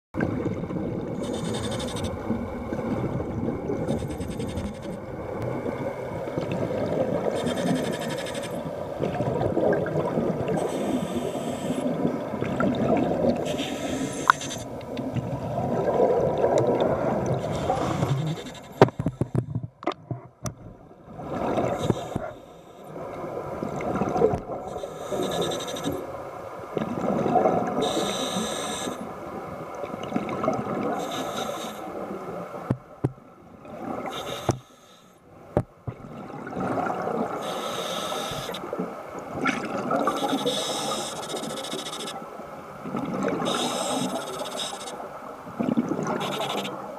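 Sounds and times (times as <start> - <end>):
underwater rushing water: 0.2 - 34.7, 35.3 - 46.9
hiss: 1.2 - 2.0, 10.6 - 11.9, 13.4 - 14.7, 21.7 - 22.9, 24.7 - 26.0, 27.8 - 29.0, 31.0 - 31.9, 34.1 - 35.2, 37.4 - 38.6, 40.1 - 42.2, 43.4 - 45.0, 46.2 - 46.8.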